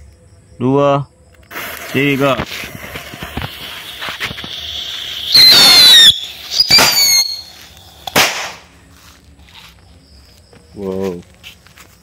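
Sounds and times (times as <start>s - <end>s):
fuse hissing: 1.4s - 8.6s
shrill rocket whistles: 1.5s - 8.6s
firework bang: 2.3s - 8.7s.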